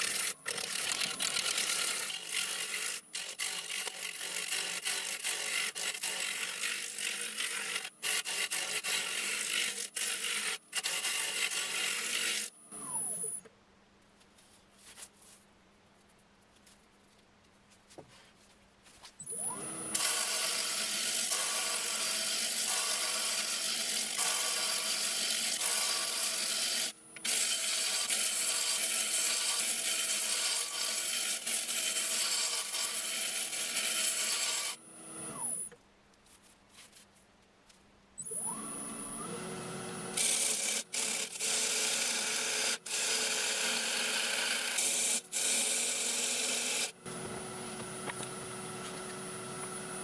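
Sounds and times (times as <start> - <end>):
turning tool rasping into wood: 0.0 - 12.5.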